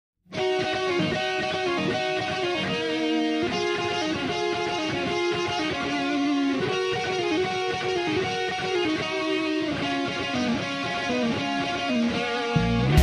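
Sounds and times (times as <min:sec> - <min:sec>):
slow electric guitar notes: 0:00.3 - 0:13.0.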